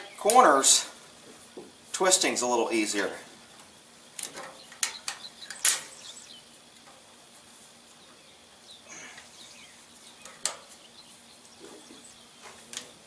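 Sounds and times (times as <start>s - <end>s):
faint bird chirps: 3.7s - 6.7s, 7.8s - 13.0s.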